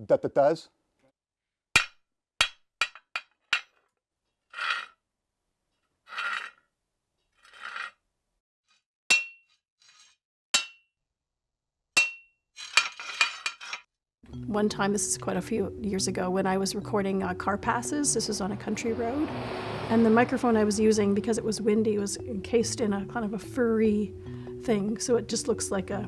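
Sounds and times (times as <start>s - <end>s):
hammer striking metal bar: 1.8s - 3.7s, 9.1s - 9.5s, 10.6s - 10.9s, 12.0s - 12.3s
metal scraping: 4.5s - 4.9s, 6.1s - 6.6s, 7.4s - 8.0s.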